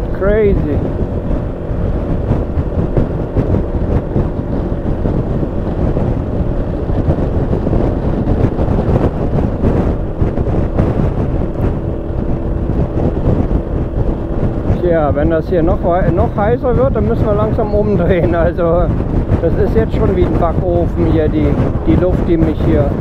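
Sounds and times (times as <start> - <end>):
scooter engine running: 0.0 - 16.4
wind rushing over microphone: 0.0 - 23.0.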